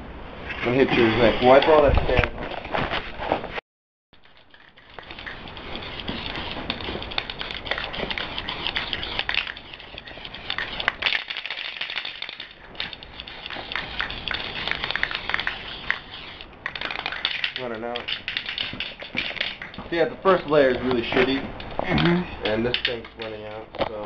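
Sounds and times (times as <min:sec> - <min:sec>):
spray-paint can hissing: 0:05.0 - 0:19.7.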